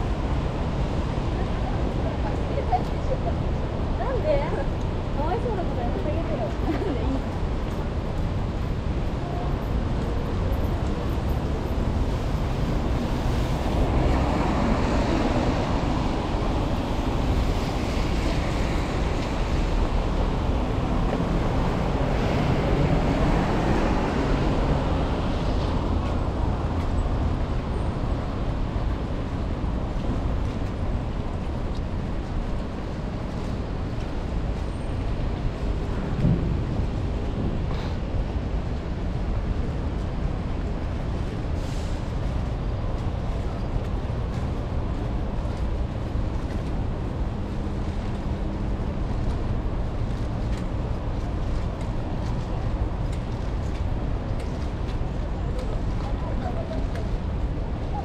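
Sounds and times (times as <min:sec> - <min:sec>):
passing traffic: 0:00.0 - 0:58.0.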